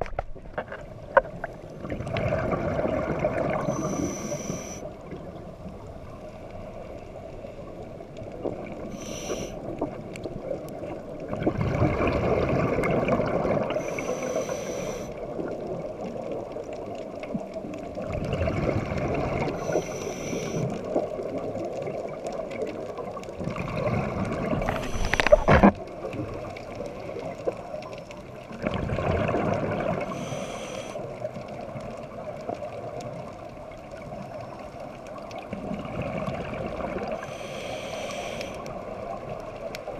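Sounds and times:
crackling burst of bubbles: 1.1s - 4.8s, 8.5s - 31.8s
exhaust bubbles gurgling: 1.2s - 4.3s, 8.4s - 14.2s, 17.4s - 19.8s, 20.4s - 30.2s, 35.1s - 37.3s
regulator inhalation hiss: 3.6s - 4.9s, 8.9s - 9.6s, 13.8s - 15.2s, 19.6s - 20.7s, 30.0s - 31.1s, 37.1s - 38.6s.

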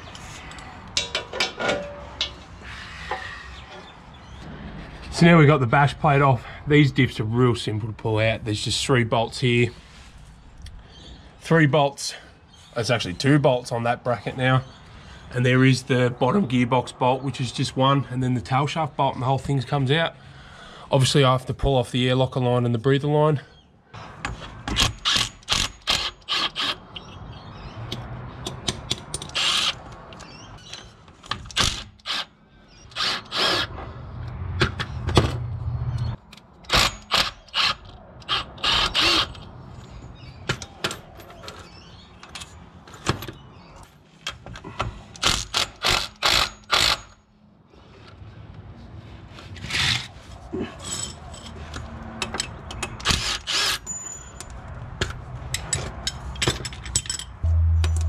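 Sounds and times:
metal clicks and knocks: 0.9s - 2.5s, 51.1s - 53.1s, 54.4s - 58.0s
low hum: 57.4s - 58.0s.

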